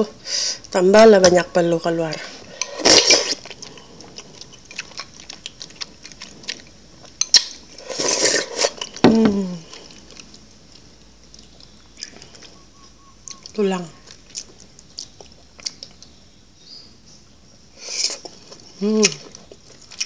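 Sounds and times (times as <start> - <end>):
person slurping soup: 2.2 - 3.8, 7.8 - 9.0
wet mouth and chewing clicks: 2.6 - 9.0, 9.7 - 12.6, 13.2 - 16.2, 18.0 - 20.0.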